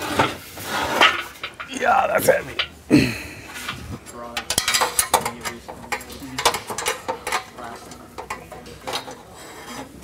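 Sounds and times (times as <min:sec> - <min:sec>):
metal tools clinking: 0:03.6 - 0:09.3.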